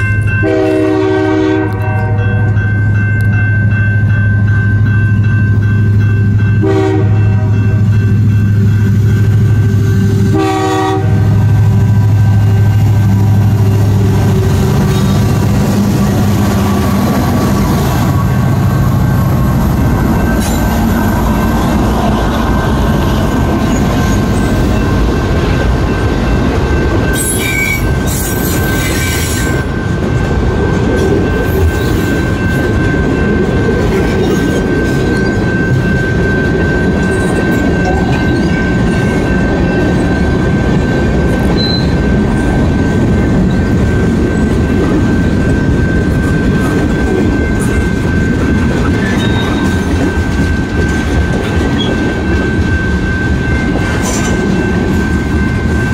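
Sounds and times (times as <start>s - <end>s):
crossing bell ringing: 0.0s - 55.9s
diesel locomotive droning: 0.0s - 55.9s
freight train wheels on rails: 0.0s - 55.9s
train horn blasts: 0.4s - 2.6s, 6.6s - 7.7s, 10.2s - 11.5s.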